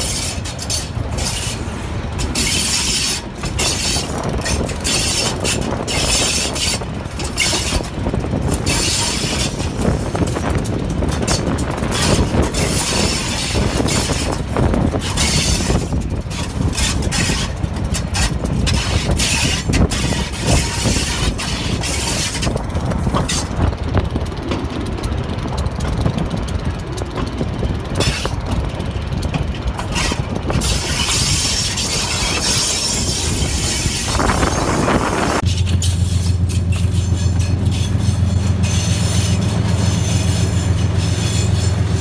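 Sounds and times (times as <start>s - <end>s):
train rumbling along track: 0.0s - 42.0s
wheels clicking on rails: 0.0s - 42.0s.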